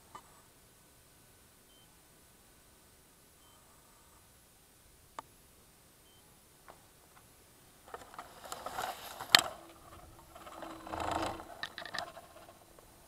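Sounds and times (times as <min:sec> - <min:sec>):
rustling grass: 0:07.8 - 0:13.0
plastic scraping: 0:07.9 - 0:12.7.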